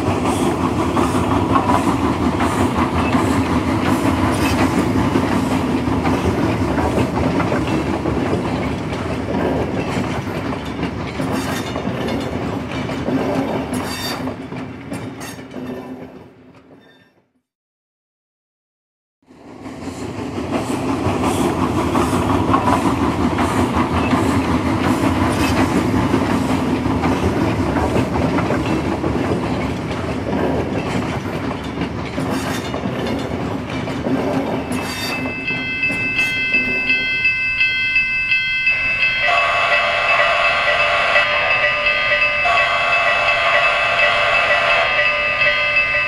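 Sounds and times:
model train running on track: 0.0s - 16.6s, 19.3s - 46.0s
multi-tone train horn: 39.2s - 46.0s.

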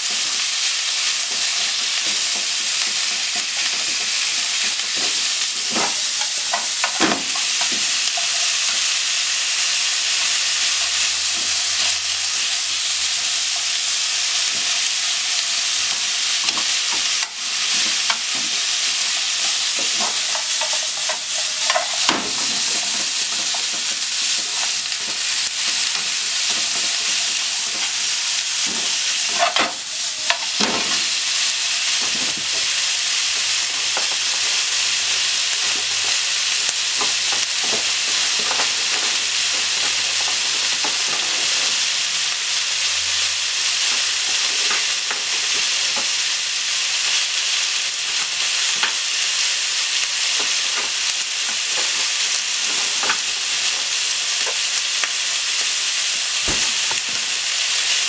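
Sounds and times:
meat and onion sizzling in pan: 0.0s - 58.0s
chopsticks scraping a pan: 3.4s - 8.9s, 16.5s - 28.0s, 28.6s - 31.2s.

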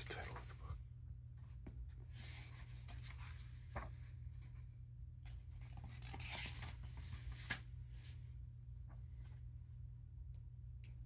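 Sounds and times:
faint low hum: 0.0s - 11.0s
book pages rustling: 1.4s - 4.7s, 5.3s - 8.2s.

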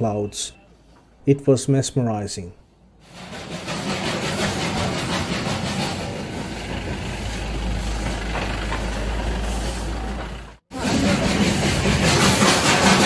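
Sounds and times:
steam train hiss and rumble: 3.0s - 13.0s.

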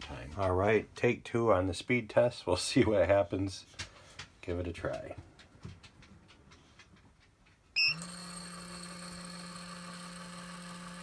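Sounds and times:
dispenser beep: 7.8s - 8.0s
dispenser motor humming: 7.9s - 11.0s.

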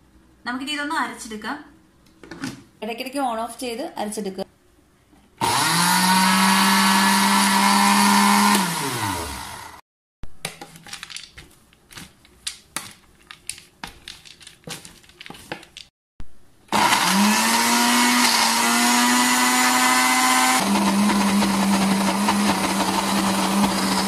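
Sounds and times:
mixer grinder motor running: 5.4s - 9.8s, 16.7s - 24.0s.

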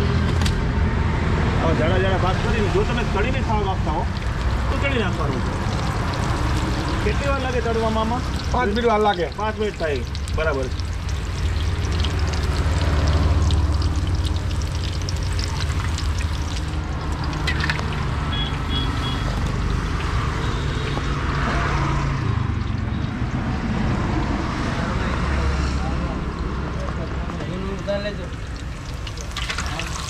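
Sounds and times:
food sizzling in frying oil: 2.2s - 21.8s, 27.4s - 30.0s.

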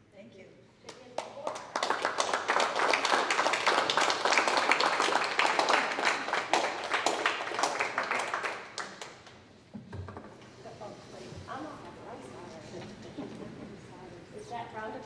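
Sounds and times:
crowd applauding: 1.4s - 9.4s.

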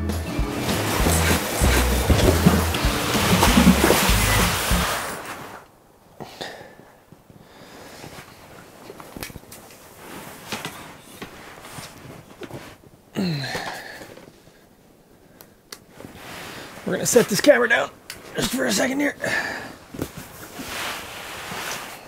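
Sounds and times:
fabric rustling and knocks: 0.6s - 5.6s.

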